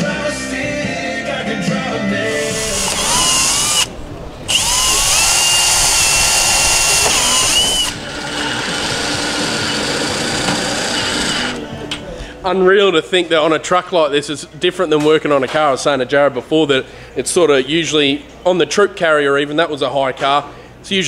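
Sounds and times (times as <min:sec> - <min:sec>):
cordless drill boring into wood: 0:02.3 - 0:03.9, 0:04.5 - 0:11.6.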